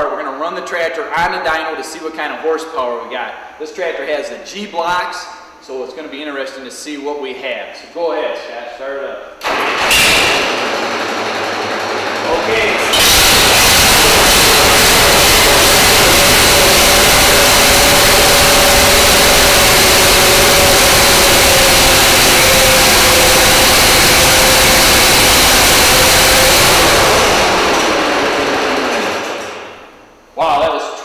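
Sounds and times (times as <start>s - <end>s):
tractor engine running hard: 9.4s - 29.8s.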